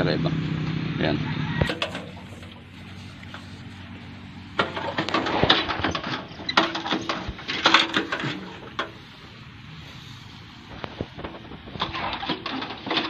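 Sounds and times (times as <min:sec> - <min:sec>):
hand pump clattering and squeaking: 0:01.6 - 0:03.9, 0:04.6 - 0:09.0, 0:11.8 - 0:13.0.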